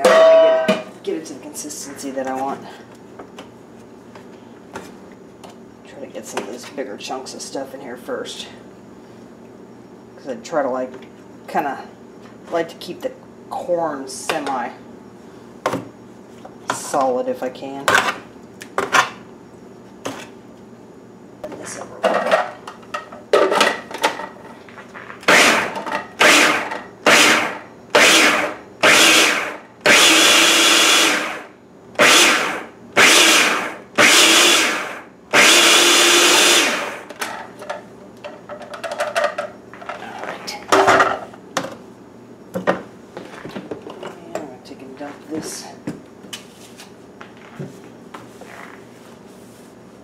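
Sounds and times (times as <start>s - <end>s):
food processor motor pulsing: 25.2s - 37.1s.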